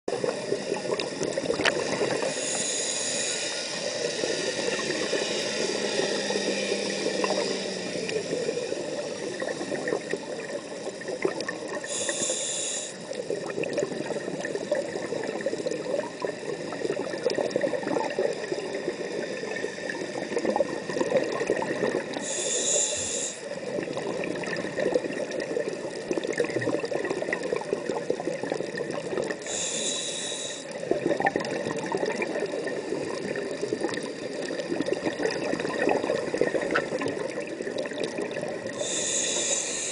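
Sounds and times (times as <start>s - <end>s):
fine crackling underwater: 0.1s - 39.9s
short high hiss: 22.3s - 23.5s, 38.8s - 39.9s.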